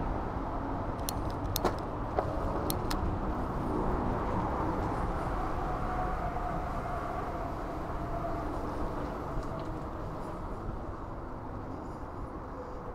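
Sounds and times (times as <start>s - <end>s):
sharp clicks: 1.0s - 1.9s, 2.6s - 3.0s.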